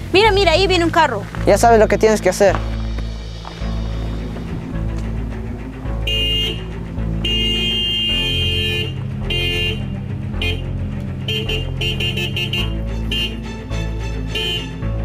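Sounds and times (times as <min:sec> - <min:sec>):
background music: 0:00.0 - 0:15.0
car horn honking: 0:06.0 - 0:14.8.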